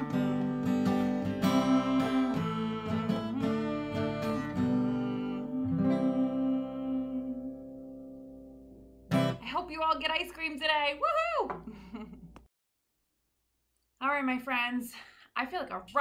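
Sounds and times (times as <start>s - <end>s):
acoustic guitar strumming chords: 0.0s - 9.4s.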